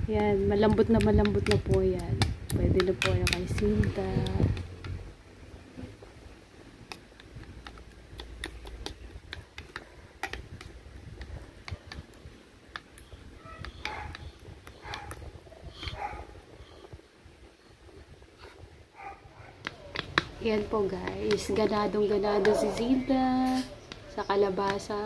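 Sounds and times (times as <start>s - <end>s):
spoon mashing food in a bowl: 0.1s - 5.0s, 6.8s - 16.1s, 19.5s - 25.0s.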